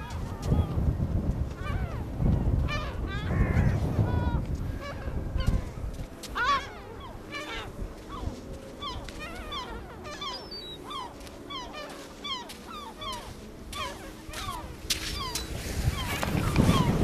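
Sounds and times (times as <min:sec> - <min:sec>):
seagulls calling: 0:00.0 - 0:00.8, 0:01.5 - 0:17.0
footstep on sand: 0:05.4 - 0:06.7, 0:07.4 - 0:17.0.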